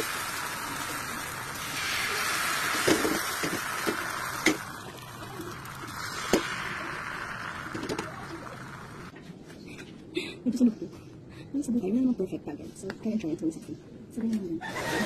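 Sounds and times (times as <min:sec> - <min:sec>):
batter sizzling in a pan: 0:00.0 - 0:09.1.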